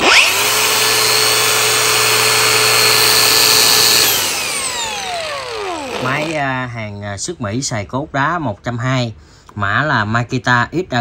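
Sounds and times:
angle grinder whine: 0.0 - 6.7.

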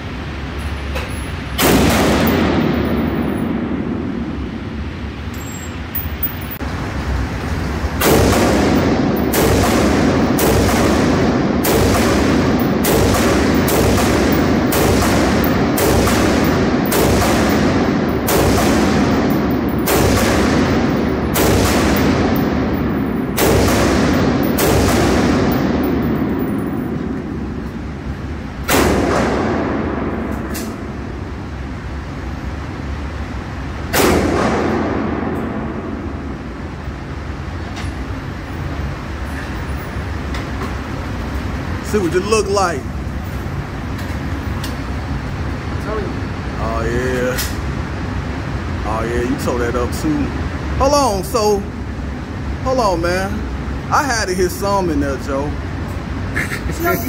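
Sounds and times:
rifle shots echoing indoors: 1.6 - 4.8, 8.0 - 31.6, 33.8 - 36.8.

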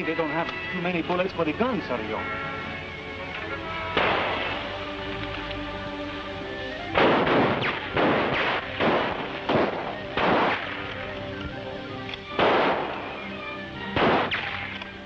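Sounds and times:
background music: 0.0 - 15.0
rifle shots: 4.0 - 4.7, 6.9 - 11.1, 12.3 - 15.0.

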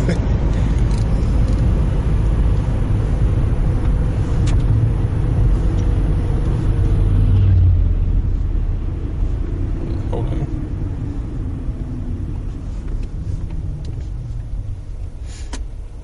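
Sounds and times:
car cabin engine and road rumble: 0.0 - 16.0.

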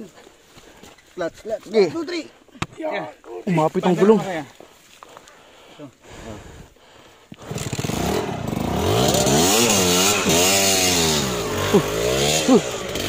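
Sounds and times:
dirt bike engine revving: 7.4 - 13.0.

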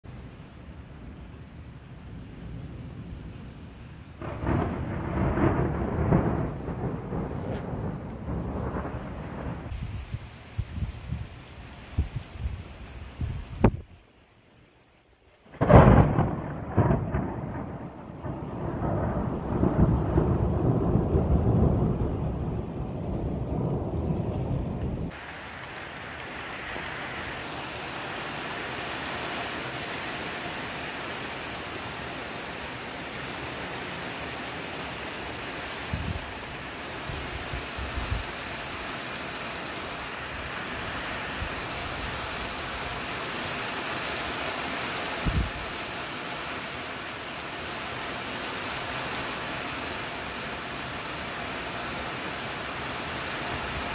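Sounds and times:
heavy rain pouring: 0.0 - 53.9
thunder rumbling: 2.2 - 11.3, 15.5 - 27.2.

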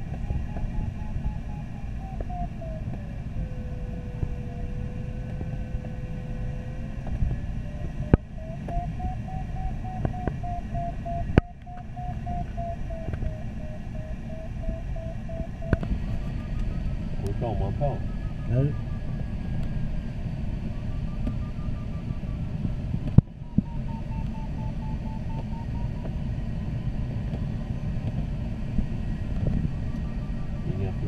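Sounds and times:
airflow rumble: 0.0 - 31.0
steady lower tone: 0.0 - 31.0
variometer beeping: 8.0 - 19.8.

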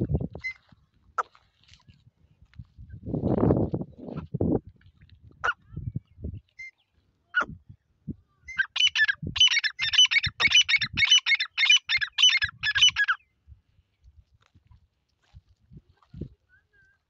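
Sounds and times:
francolin harsh repeated calls: 8.5 - 13.2.

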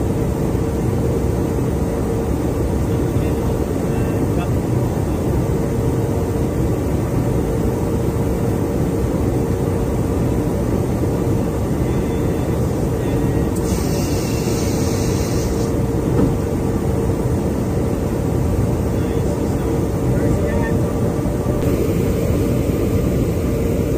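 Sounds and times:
aircraft engine and airflow roar: 0.0 - 23.9
constant hum: 0.0 - 23.9
brief hiss: 13.6 - 15.7.

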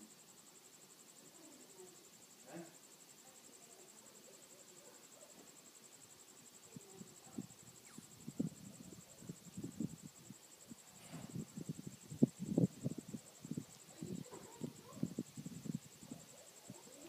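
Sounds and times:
cricket trilling: 0.0 - 17.0
rustles: 4.2 - 17.0.

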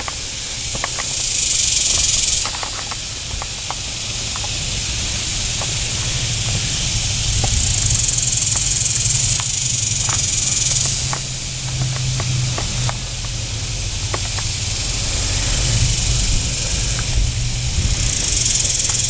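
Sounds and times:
cicadas buzzing: 0.0 - 19.0
faint ticks: 7.4 - 13.4, 18.0 - 19.0.

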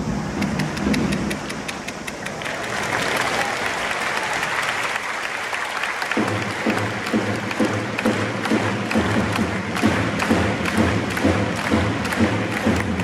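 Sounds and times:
stadium crowd clapping and cheering: 0.0 - 13.0
rhythmic low drum beat: 6.2 - 13.0.

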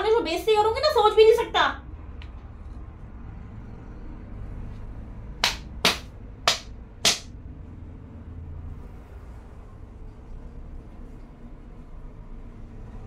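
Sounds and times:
wooden stick smacks: 5.4 - 7.3.

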